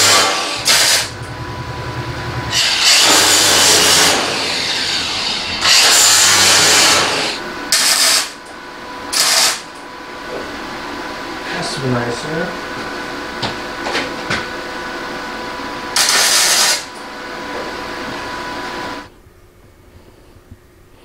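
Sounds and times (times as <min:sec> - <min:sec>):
welding crackle: 0:00.0 - 0:01.3, 0:05.6 - 0:08.4, 0:09.1 - 0:09.6, 0:16.0 - 0:16.9
angle grinder grinding metal: 0:00.0 - 0:01.4, 0:02.4 - 0:08.4.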